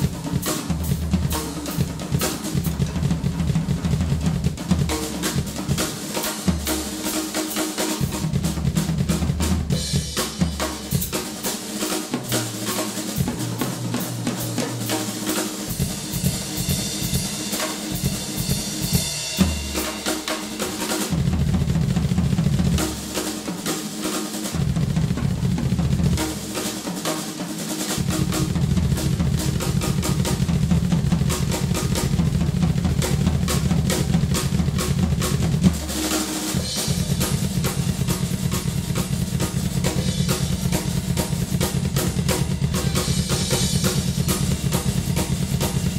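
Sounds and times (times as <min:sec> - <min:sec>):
rock drum kit played fast: 0:00.0 - 0:45.9.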